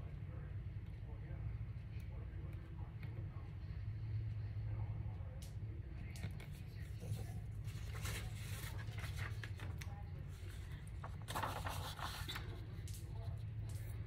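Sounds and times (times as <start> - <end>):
steady low hum: 0.0 - 14.0
paper rustling: 6.2 - 14.0.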